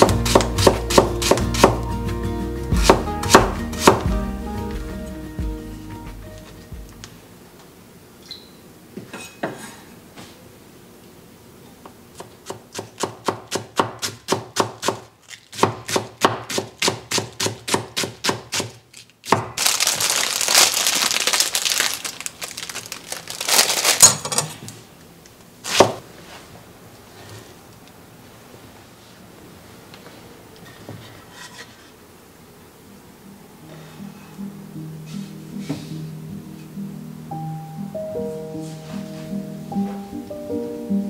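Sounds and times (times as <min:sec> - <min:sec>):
knife chopping on wooden board: 0:00.0 - 0:01.8, 0:02.8 - 0:04.1, 0:12.2 - 0:19.6
scraping and rustling: 0:30.6 - 0:32.0.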